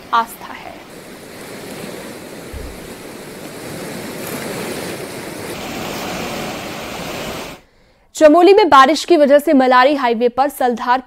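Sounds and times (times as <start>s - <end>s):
floodwater rushing in river: 0.0s - 7.6s.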